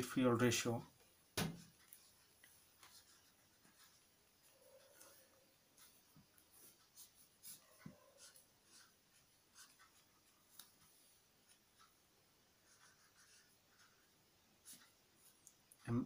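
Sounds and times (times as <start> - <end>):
pen scratching on paper: 1.6 - 10.9, 12.6 - 15.0.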